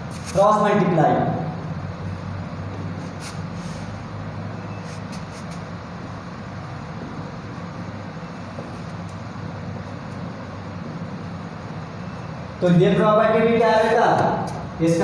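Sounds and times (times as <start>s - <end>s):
marker writing on whiteboard: 4.7s - 5.8s.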